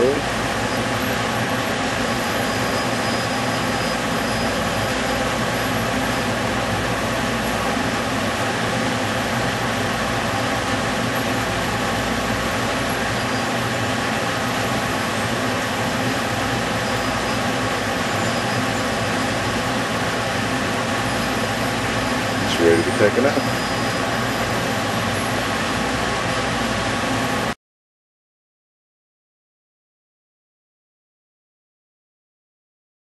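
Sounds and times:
oven whirring: 0.0 - 27.6.

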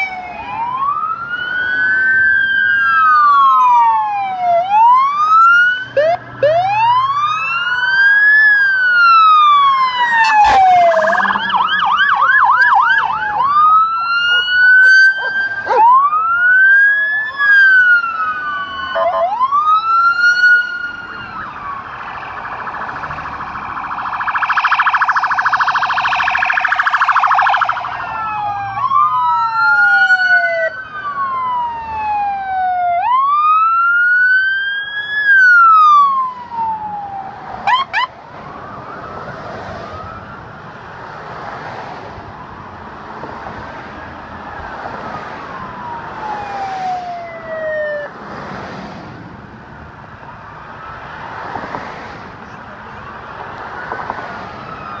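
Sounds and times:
siren fast warble: 0.0 - 39.3
police sirens wailing: 0.0 - 55.0
siren short chirp: 10.0 - 13.0.

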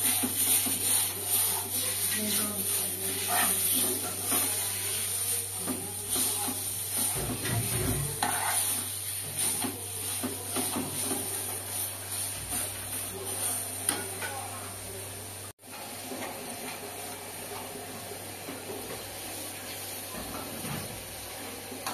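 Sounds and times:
meat sizzling in a pan: 0.0 - 14.2
metal spoon scraping a pan: 0.0 - 14.4.

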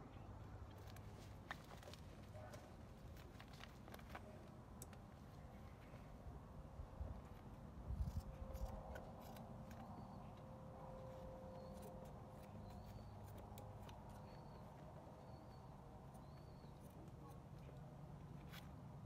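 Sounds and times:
scissors snipping feathers: 8.0 - 10.0, 11.6 - 14.5.

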